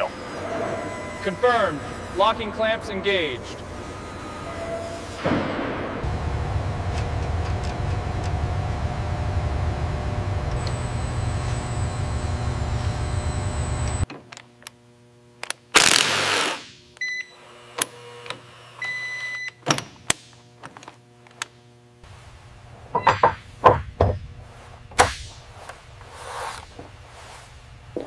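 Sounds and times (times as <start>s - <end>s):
electronic beeps: 10.6s - 14.0s.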